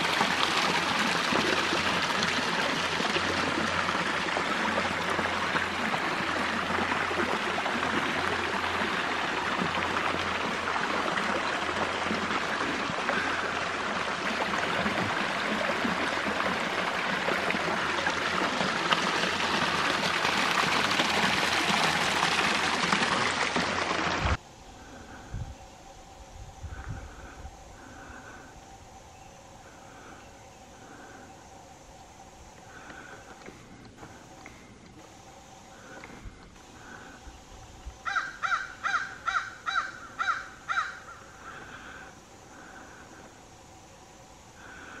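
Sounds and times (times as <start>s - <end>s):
creek water rushing over rocks: 0.0s - 24.4s.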